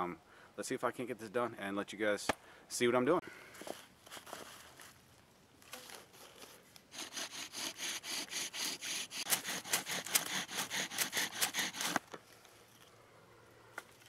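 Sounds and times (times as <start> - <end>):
wooden spindle grinding: 7.0 - 12.0.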